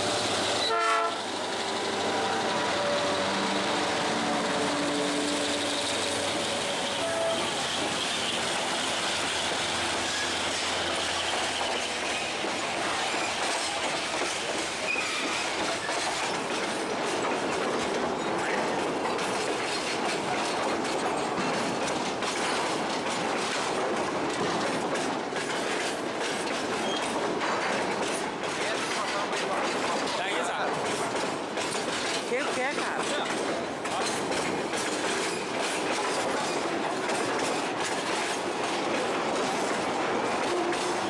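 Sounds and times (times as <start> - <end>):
train wheel squeal: 0.0 - 16.4, 25.6 - 27.2, 34.0 - 36.7
freight train rumbling over bridge: 0.0 - 41.0
wheels clattering over rail joints: 0.0 - 41.0.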